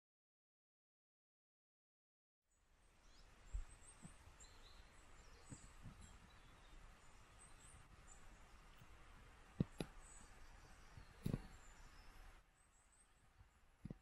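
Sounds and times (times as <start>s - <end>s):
birds chirping: 2.8s - 14.0s.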